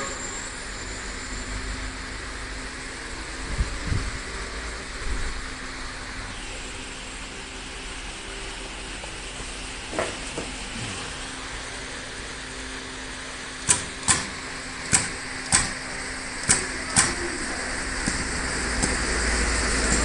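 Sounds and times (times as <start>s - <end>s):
machine humming: 0.0s - 20.0s
crimping press clacks: 13.6s - 15.8s, 16.4s - 17.3s, 18.0s - 19.1s.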